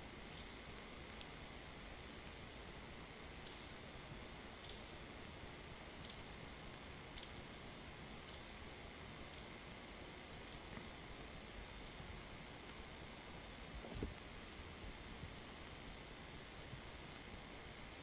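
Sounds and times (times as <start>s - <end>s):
background hiss: 0.0s - 18.0s
cricket chirping: 0.0s - 18.0s.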